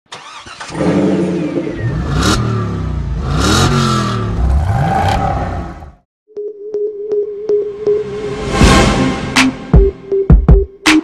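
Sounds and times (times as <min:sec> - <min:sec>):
car engine revving: 0:00.2 - 0:06.0.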